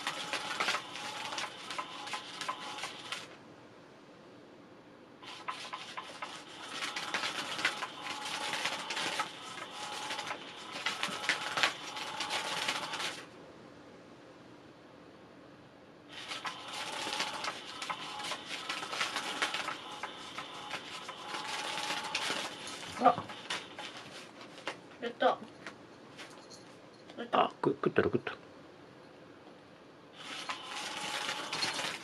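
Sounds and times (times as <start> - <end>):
cat toy motor whirring and clicking: 0.0 - 3.3, 5.2 - 13.3, 16.1 - 24.2, 30.2 - 32.0.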